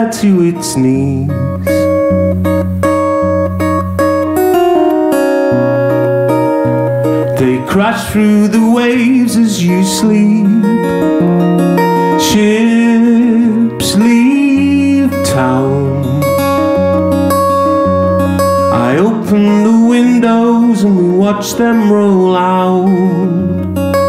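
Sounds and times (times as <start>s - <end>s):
man singing folk song: 0.0s - 2.2s, 7.0s - 24.0s
acoustic guitar strumming: 0.0s - 24.0s.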